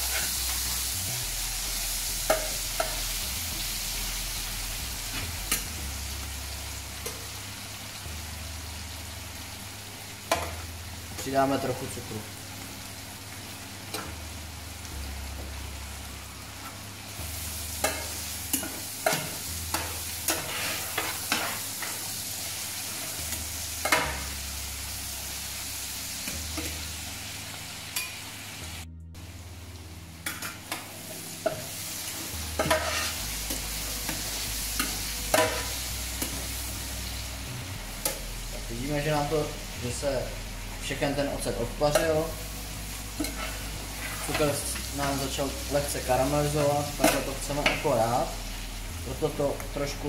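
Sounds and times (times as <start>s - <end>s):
food sizzling in a pan: 0.0s - 50.0s
metal turner scraping a pan: 17.8s - 22.0s, 32.6s - 34.2s, 43.2s - 45.3s.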